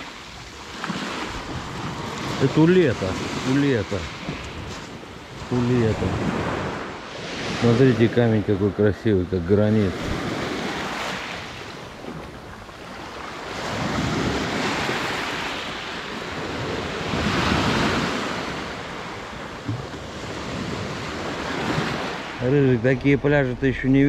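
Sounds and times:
waves washing onto pebbles: 0:00.0 - 0:08.1.

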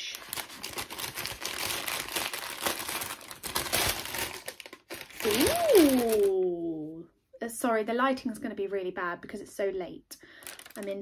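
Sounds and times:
paper bag crinkling: 0:00.0 - 0:06.3, 0:10.4 - 0:11.0
woman saying ooh: 0:05.2 - 0:07.1.

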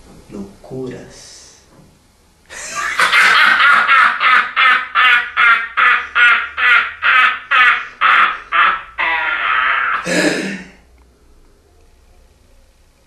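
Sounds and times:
man laughing loudly: 0:02.5 - 0:10.6.

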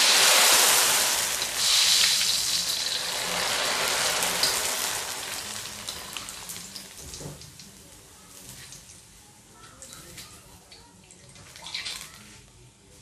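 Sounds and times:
noodles sizzling in hot oil: 0:00.0 - 0:09.2.

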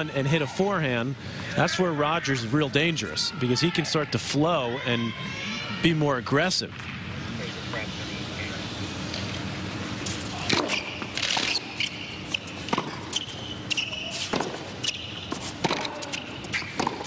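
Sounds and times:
shoes squeaking on court: 0:10.0 - 0:17.0
racket striking tennis ball: 0:12.4 - 0:17.0.

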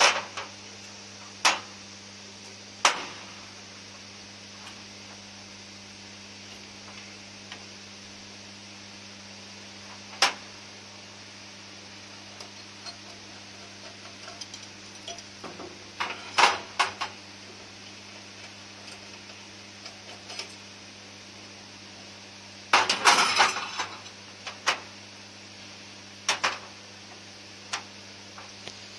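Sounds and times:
low electrical hum: 0:00.0 - 0:28.9
metal parts clinking on metal bench: 0:13.8 - 0:15.3.

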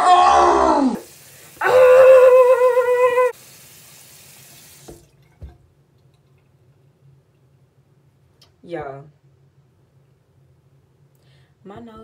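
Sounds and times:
woman crying out: 0:01.6 - 0:03.3
woman wailing: 0:01.6 - 0:03.4.

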